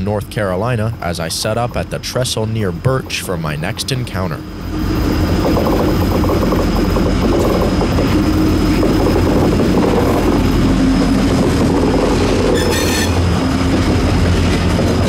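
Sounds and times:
diesel locomotive engine drone: 0.0 - 15.0
wheels rumbling on rail: 0.0 - 15.0
high squeal: 10.0 - 13.5.

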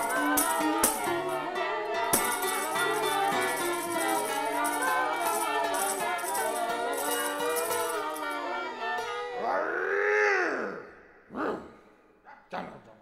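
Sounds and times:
instrumental background music: 0.0 - 9.6
sharp percussion strikes: 2.1 - 8.2.

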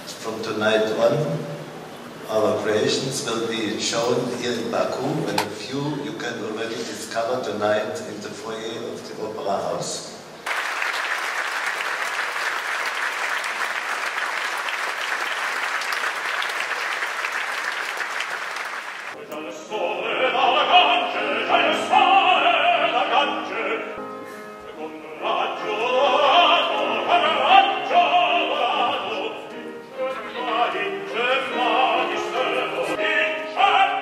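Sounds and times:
audience applauding: 10.4 - 19.2
grand piano: 11.6 - 34.0
male operatic tenor singing: 19.2 - 24.0, 24.6 - 34.0.

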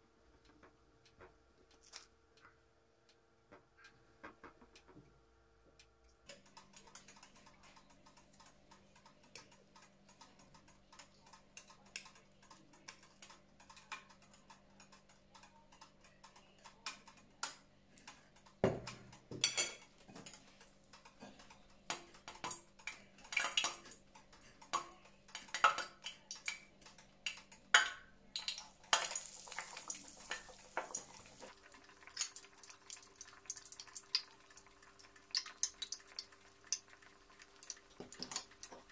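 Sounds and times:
utensils clinking on dishes: 18.8 - 20.4.

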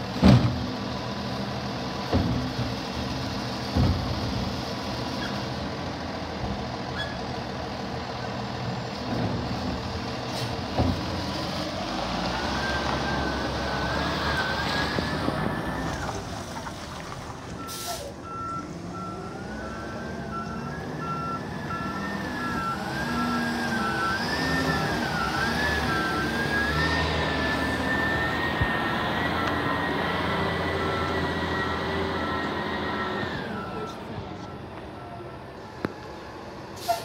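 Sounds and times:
air brake hiss: 10.3 - 10.6, 17.7 - 18.2, 36.8 - 37.0.

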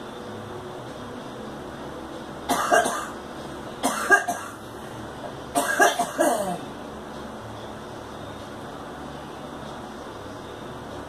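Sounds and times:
woman coughing: 2.5 - 3.2, 3.8 - 4.6, 5.6 - 6.6.

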